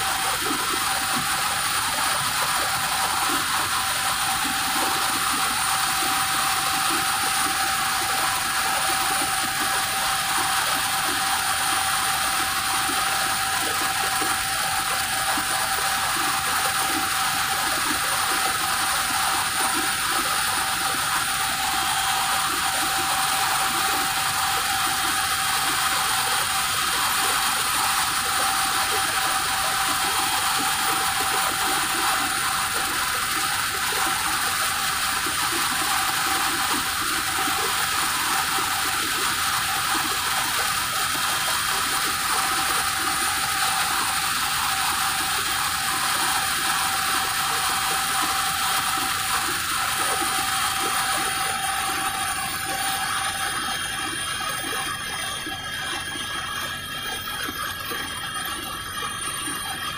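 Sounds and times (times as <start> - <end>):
helicopter engine and rotor noise: 0.0 - 59.9
high whining tones: 38.0 - 59.9.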